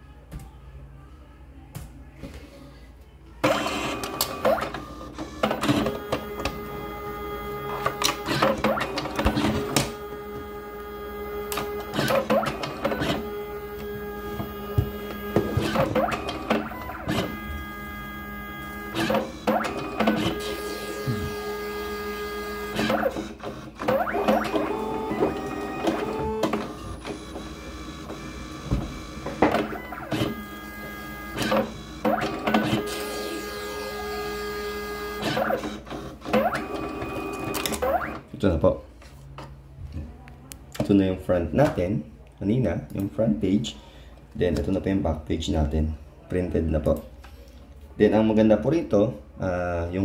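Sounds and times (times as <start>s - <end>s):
printer motors whirring: 3.4s - 38.3s.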